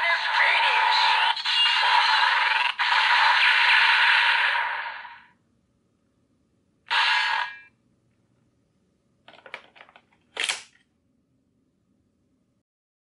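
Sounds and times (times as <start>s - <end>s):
electronic toy sound effect: 6.9s - 7.7s
sharp plastic clack: 9.3s - 10.8s.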